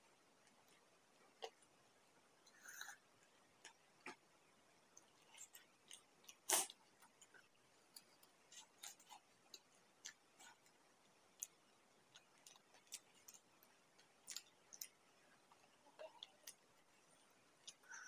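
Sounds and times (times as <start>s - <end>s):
soft crunches of chewing: 4.9s - 18.0s.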